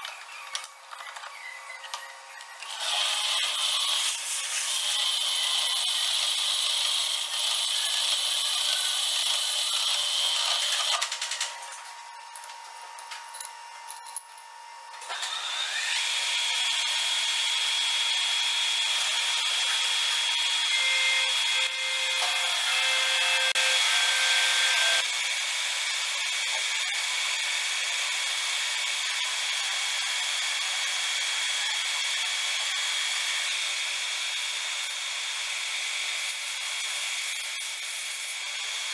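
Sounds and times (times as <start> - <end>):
metal lathe whining: 1.9 - 11.0, 15.1 - 38.9.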